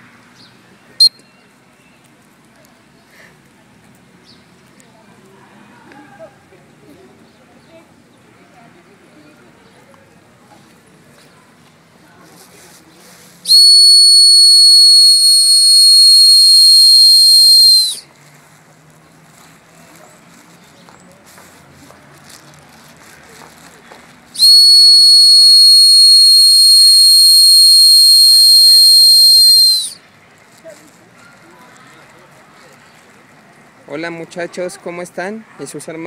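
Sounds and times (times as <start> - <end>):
high-pitched whistle blasts: 13.5 - 18.0, 24.4 - 30.0.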